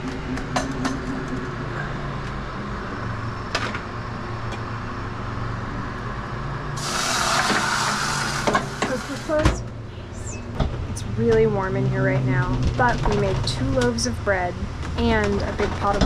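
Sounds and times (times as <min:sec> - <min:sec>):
steady low hum: 0:00.0 - 0:16.0
loud rushing hiss: 0:06.8 - 0:09.5.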